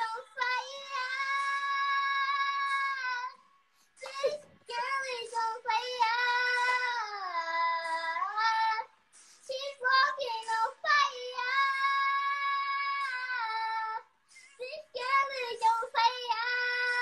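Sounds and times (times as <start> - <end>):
girl singing unaccompanied: 0.0 - 3.4, 4.0 - 17.0
girl breathing: 9.1 - 9.5.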